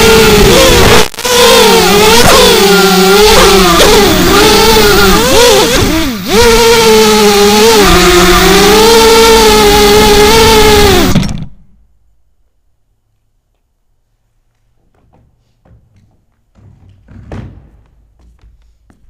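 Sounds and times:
quadcopter motors whining: 0:00.0 - 0:11.5.

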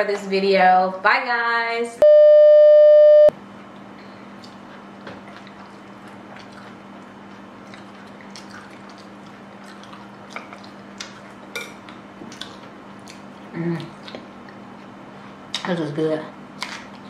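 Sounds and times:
faint low hum: 0:02.0 - 0:03.3
loud test tone: 0:02.0 - 0:03.3.

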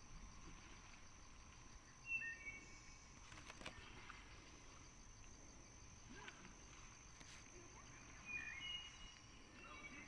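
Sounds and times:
bird chirp: 0:01.8 - 0:04.2, 0:07.8 - 0:10.0.

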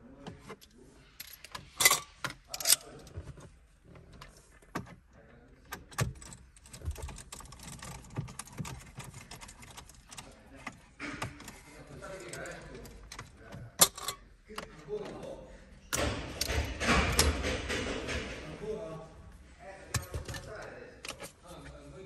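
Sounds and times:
small clicks and rattles: 0:05.7 - 0:14.7.

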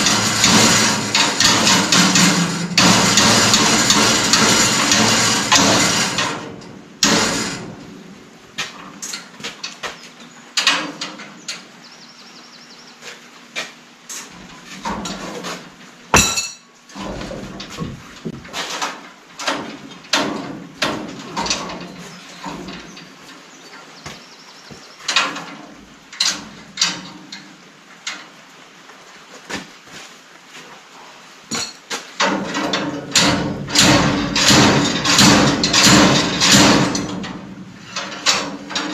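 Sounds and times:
loud steady noise: 0:00.0 - 0:08.6
metal knocks and clanks: 0:00.0 - 0:10.0, 0:14.2 - 0:23.1, 0:31.5 - 0:38.9.

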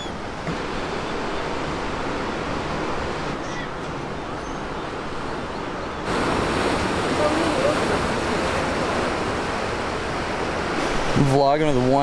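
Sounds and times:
surf breaking on rocky shore: 0:06.0 - 0:12.0.

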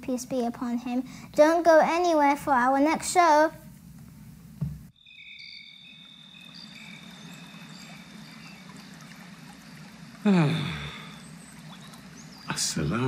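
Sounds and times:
chirping calls: 0:05.0 - 0:13.0
running water: 0:05.7 - 0:13.0.

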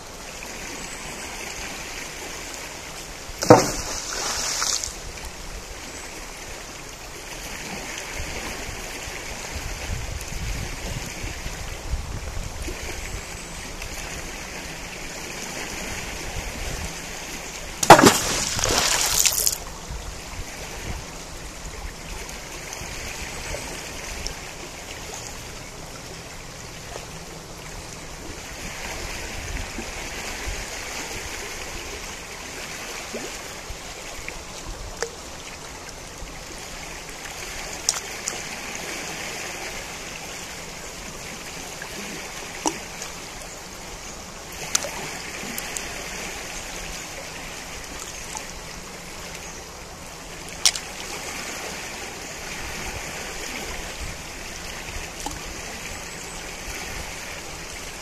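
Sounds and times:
river water rushing: 0:00.0 - 0:58.0.

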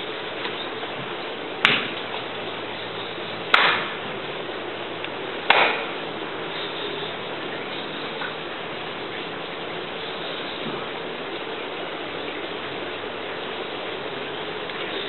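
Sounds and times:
steady hiss: 0:00.0 - 0:15.0
slaps on a wooden floor: 0:01.6 - 0:02.0.

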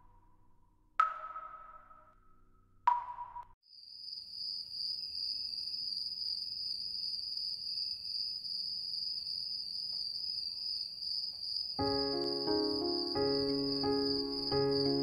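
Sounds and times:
crickets chirping: 0:03.7 - 0:15.0.

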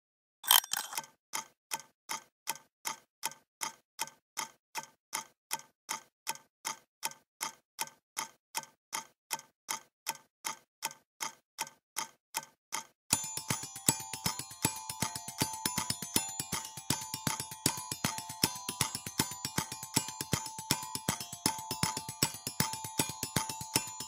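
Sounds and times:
clock-like ticking: 0:00.5 - 0:24.0.

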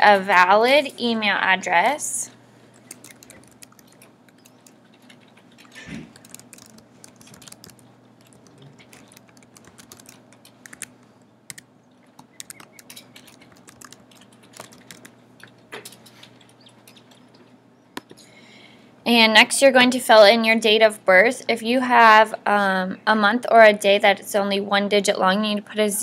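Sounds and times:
laptop keyboard keys clicking: 0:02.8 - 0:15.2.

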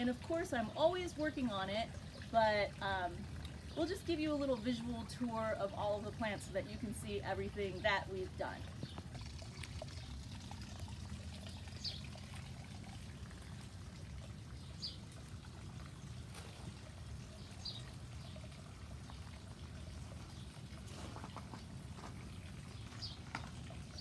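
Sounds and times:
water splashing into pond: 0:07.9 - 0:24.0.

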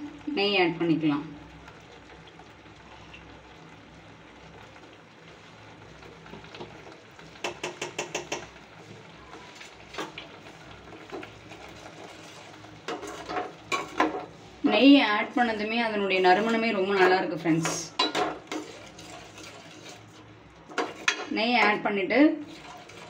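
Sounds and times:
metal spoon clinking on pan: 0:17.6 - 0:18.6.

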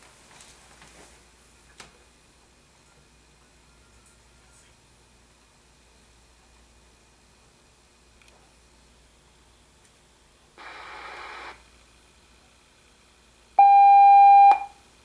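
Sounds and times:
faint high whine: 0:01.4 - 0:05.3, 0:10.5 - 0:11.7
steady received radio tone: 0:10.6 - 0:11.6
radio receiver hiss: 0:10.6 - 0:11.9.

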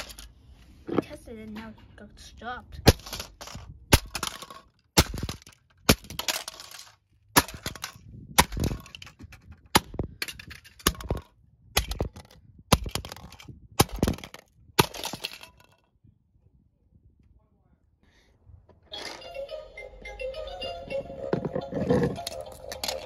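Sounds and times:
hammer striking plastic toys: 0:02.8 - 0:15.6, 0:21.3 - 0:23.0
breaking plastic rattling: 0:02.9 - 0:15.8, 0:21.6 - 0:23.0.

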